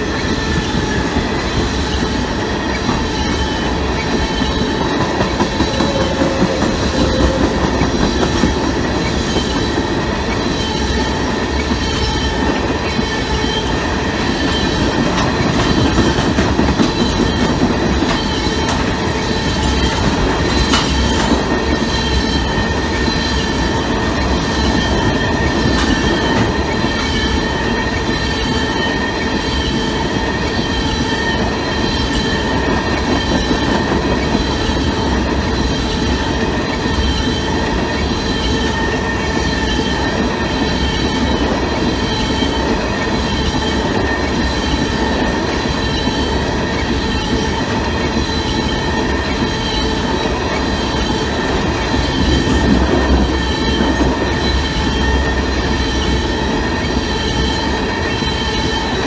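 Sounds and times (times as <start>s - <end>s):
train wheels rumbling on rails: 0.0s - 59.0s
high-pitched squealing: 3.2s - 9.0s.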